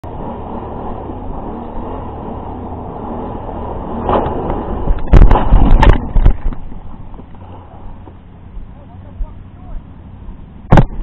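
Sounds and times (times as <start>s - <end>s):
atv engine rumbling: 0.0s - 11.0s
knocks and scrapes on microphone: 4.1s - 7.4s.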